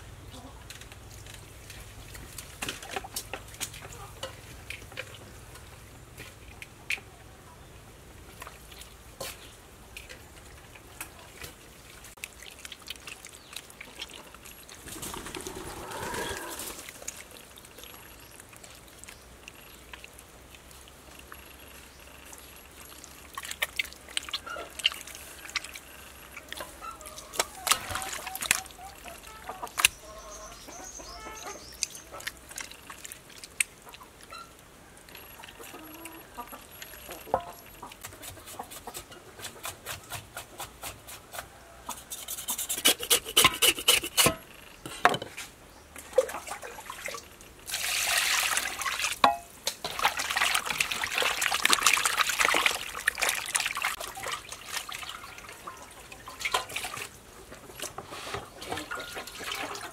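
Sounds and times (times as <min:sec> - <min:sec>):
wet squelching of kneaded meat: 0:08.2 - 0:35.7, 0:45.4 - 0:59.9
water splashing in metal basin: 0:22.2 - 0:29.9, 0:31.6 - 0:34.4, 0:46.0 - 0:59.9.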